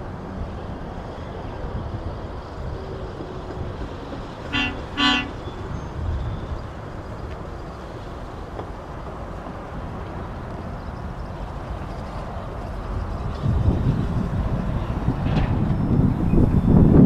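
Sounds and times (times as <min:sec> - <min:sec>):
truck horn toots: 0:04.5 - 0:05.5.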